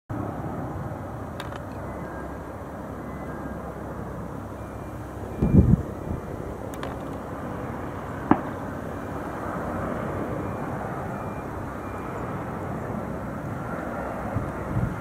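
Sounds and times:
distant jet engines: 0:00.1 - 0:15.0.

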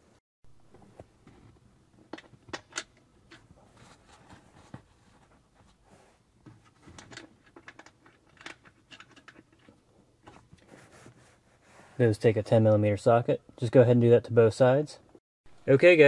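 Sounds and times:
small metal clicks and scrapes: 0:06.7 - 0:10.4.

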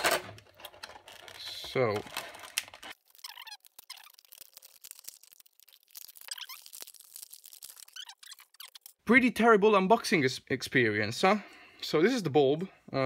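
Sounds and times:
plastic squeaking: 0:00.0 - 0:04.6, 0:06.0 - 0:09.0
stiff plastic crackling: 0:00.0 - 0:09.0.

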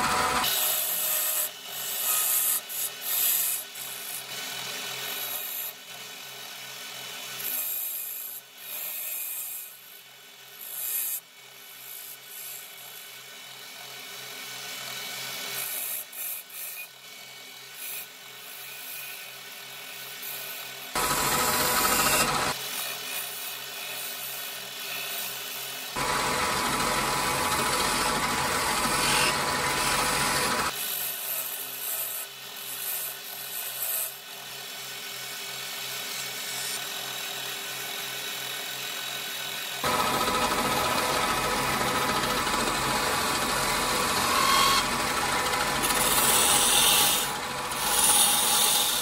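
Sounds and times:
wood lathe humming: 0:00.0 - 0:00.4, 0:21.0 - 0:22.6, 0:26.0 - 0:30.7, 0:39.8 - 0:49.0
turning tool cutting wood: 0:00.0 - 0:05.9, 0:14.2 - 0:49.0.

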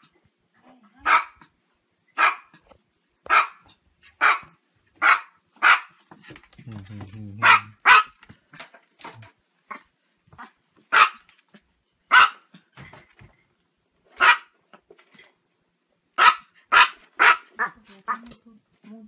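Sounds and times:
small dog yapping: 0:03.3 - 0:03.6, 0:04.2 - 0:05.9, 0:10.4 - 0:11.3, 0:14.2 - 0:14.5, 0:16.2 - 0:18.3.

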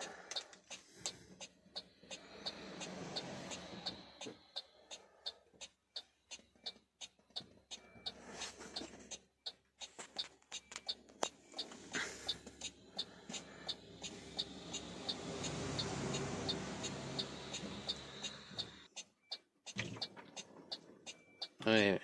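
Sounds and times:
low engine hum: 0:00.0 - 0:05.0, 0:10.8 - 0:18.9
rapid even ticking: 0:00.0 - 0:08.2, 0:09.0 - 0:21.6.

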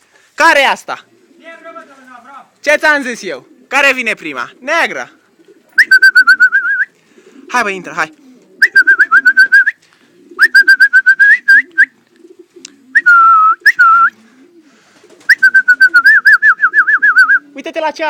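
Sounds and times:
pigeons cooing: 0:01.0 - 0:02.0, 0:03.0 - 0:17.9
loud warbling whistling: 0:05.8 - 0:06.9, 0:08.6 - 0:09.8, 0:10.4 - 0:11.9, 0:15.3 - 0:17.4.

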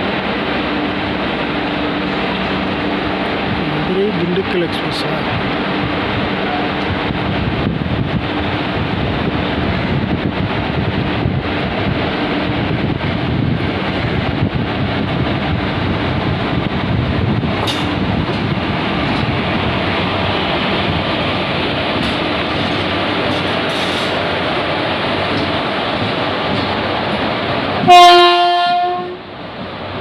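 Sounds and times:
train wheels rumbling: 0:00.0 - 0:30.0
wind on microphone: 0:05.2 - 0:24.5.

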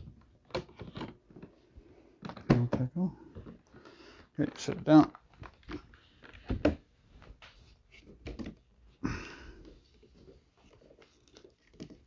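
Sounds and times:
plastic parts clicking and knocking: 0:00.0 - 0:01.6, 0:02.2 - 0:03.7, 0:08.1 - 0:08.6.

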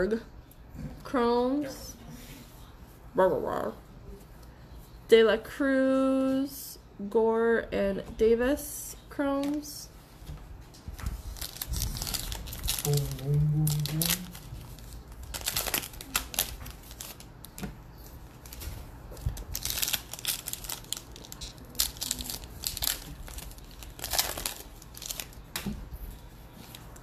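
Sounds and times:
foil wrappers tearing and crinkling: 0:11.3 - 0:17.6, 0:18.4 - 0:25.8.

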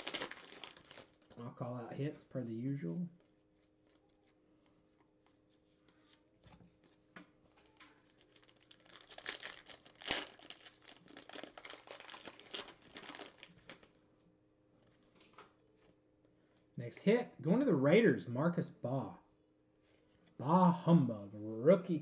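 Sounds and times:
plastic wrapper crinkling: 0:00.0 - 0:01.3, 0:07.4 - 0:14.0
wrapper ripping: 0:00.0 - 0:01.3, 0:07.5 - 0:14.0.

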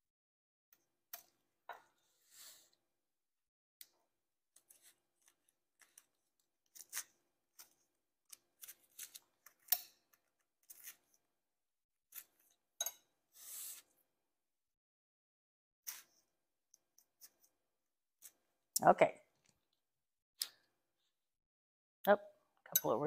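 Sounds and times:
knife scraping parchment paper: 0:04.6 - 0:07.8, 0:08.6 - 0:09.7, 0:10.6 - 0:11.3.

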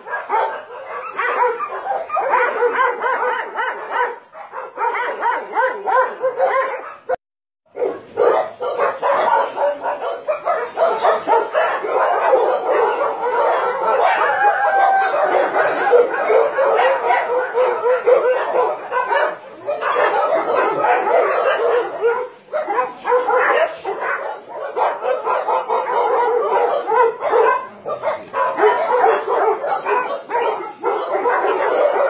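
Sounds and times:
many dogs barking: 0:00.0 - 0:32.0.

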